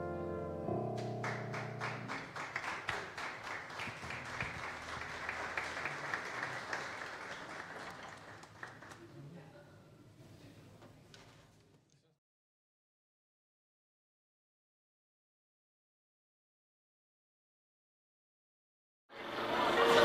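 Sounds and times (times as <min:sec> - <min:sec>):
piano chord ringing: 0:00.0 - 0:02.4
audience applauding: 0:01.0 - 0:09.2.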